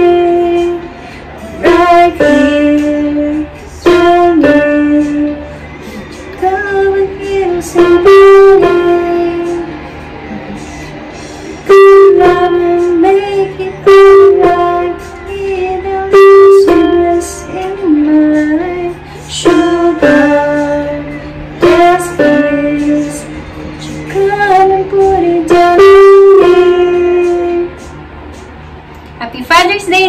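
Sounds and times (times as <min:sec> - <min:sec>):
woman singing: 0:00.0 - 0:05.6, 0:06.3 - 0:09.8, 0:11.7 - 0:27.9
electronic keyboard chords: 0:00.0 - 0:29.2.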